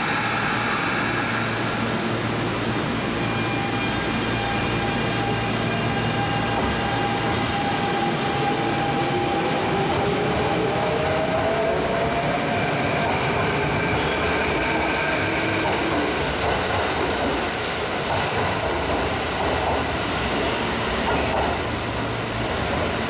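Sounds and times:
rising train motor whine: 0:00.0 - 0:16.0
train motor hum and wheel noise: 0:00.8 - 0:12.3.

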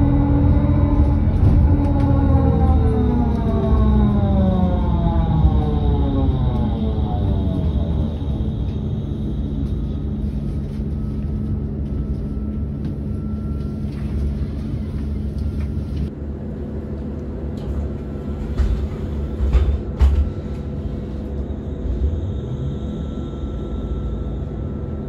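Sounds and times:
electric bus humming: 0:00.0 - 0:25.0
faint whine: 0:20.6 - 0:25.0.

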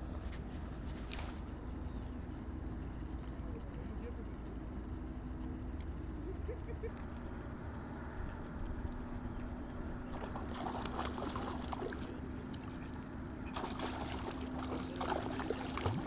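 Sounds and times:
faint hum: 0:00.0 - 0:16.0
water splashing in a pond: 0:10.0 - 0:16.0.

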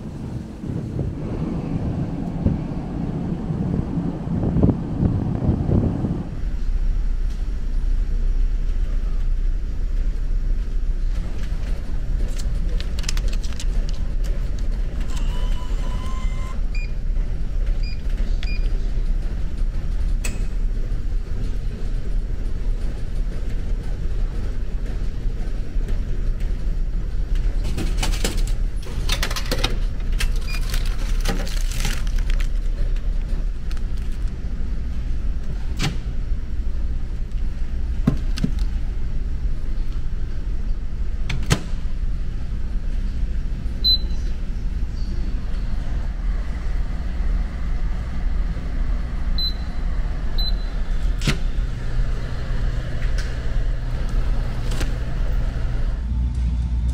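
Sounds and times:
ship engine low rumble: 0:00.0 - 0:56.9
microwave beep: 0:15.1 - 0:17.0, 0:17.8 - 0:18.7, 0:43.8 - 0:44.2, 0:49.4 - 0:49.8, 0:50.4 - 0:50.8
vending machine beeps: 0:15.1 - 0:17.0, 0:17.8 - 0:18.8, 0:30.4 - 0:30.7, 0:43.8 - 0:44.3, 0:49.4 - 0:49.8, 0:50.4 - 0:50.9.

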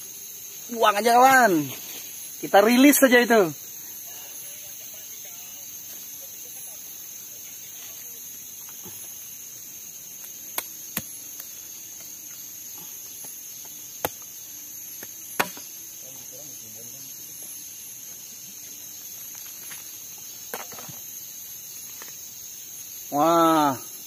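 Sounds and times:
insects chirring: 0:00.0 - 0:24.0
machete chopping husks: 0:10.2 - 0:11.5, 0:14.0 - 0:14.3, 0:15.0 - 0:15.7.

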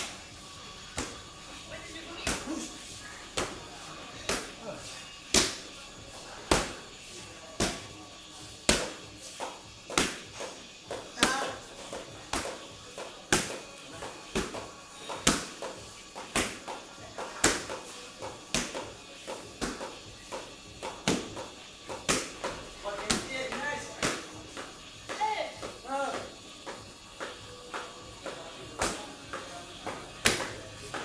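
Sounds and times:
strikes slapping on pads: 0:00.9 - 0:01.2, 0:02.2 - 0:02.5, 0:03.4 - 0:03.6, 0:04.2 - 0:04.5, 0:05.3 - 0:05.7, 0:06.5 - 0:06.8, 0:07.6 - 0:07.9, 0:08.7 - 0:31.0.

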